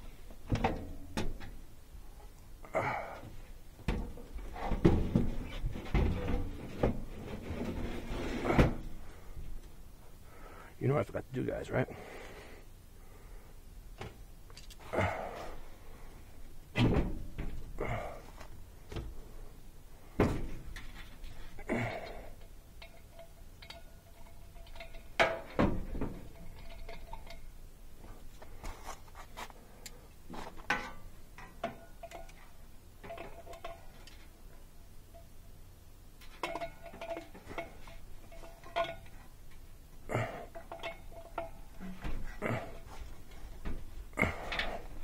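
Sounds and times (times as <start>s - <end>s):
handling and rustling noise: 3.3s - 9.8s, 14.0s - 35.3s, 36.2s - 45.0s
faint ringing tones: 17.8s - 28.6s, 29.6s - 45.0s
metallic clinks and knocks: 20.2s - 28.7s, 30.4s - 35.6s, 36.2s - 45.0s.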